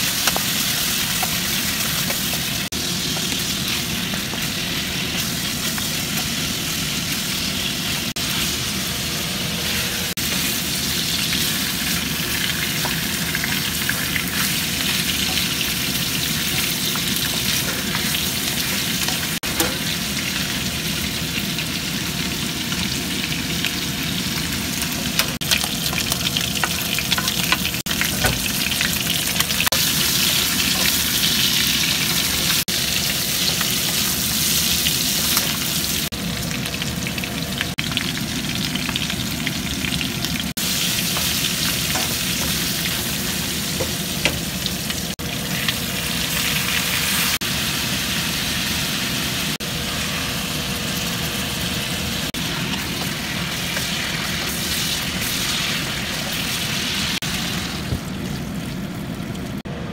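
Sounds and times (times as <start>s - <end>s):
meat sizzling in hot oil: 0.0s - 59.6s.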